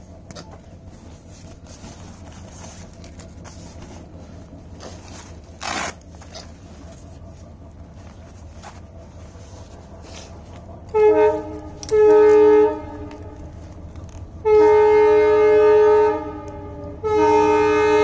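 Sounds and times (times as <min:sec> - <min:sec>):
steady low hum: 0:00.0 - 0:18.0
backpack nylon rustling: 0:00.9 - 0:10.7.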